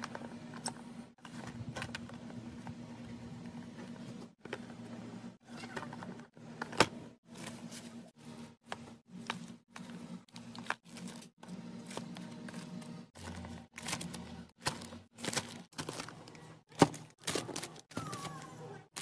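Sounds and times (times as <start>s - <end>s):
plastic crinkling: 10.3s - 19.0s.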